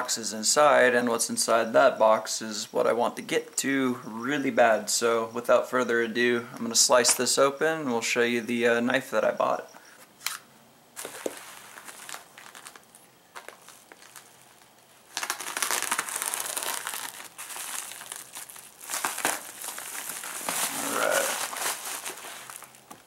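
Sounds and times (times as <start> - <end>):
plastic mailer crinkling: 11.0 - 23.0.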